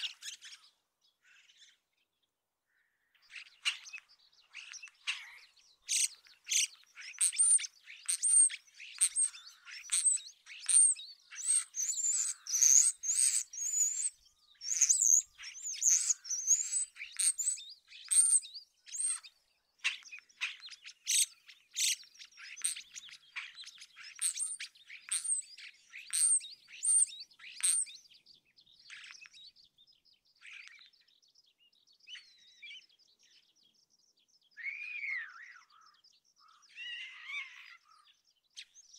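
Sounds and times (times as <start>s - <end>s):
starling singing: 4.6s - 19.2s, 21.1s - 28.0s.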